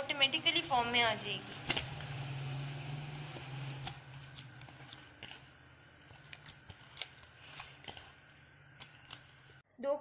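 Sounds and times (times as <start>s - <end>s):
dough squishing in bowl: 0.2s - 9.6s.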